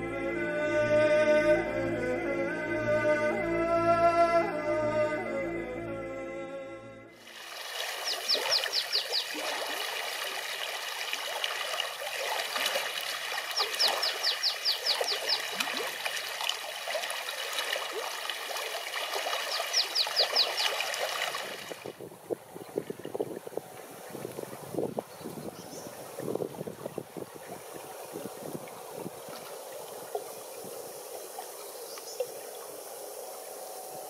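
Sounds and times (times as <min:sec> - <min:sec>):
small bird singing: 0:08.0 - 0:09.4, 0:13.6 - 0:15.6, 0:19.4 - 0:20.8.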